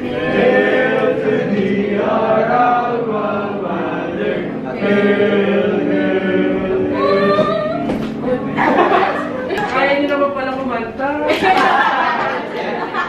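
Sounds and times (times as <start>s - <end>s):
students chanting in unison: 0.0s - 7.1s.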